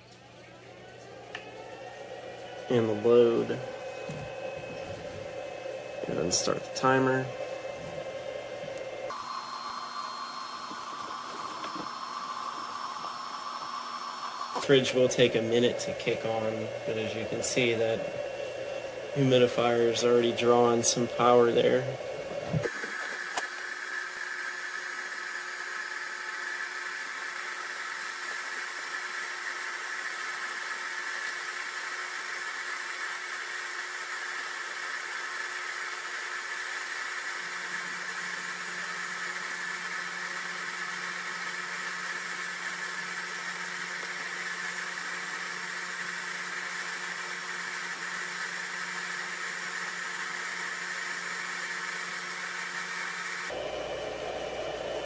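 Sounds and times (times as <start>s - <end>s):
low steady hum: 0.0s - 22.7s
electric fan whirring: 0.0s - 55.0s.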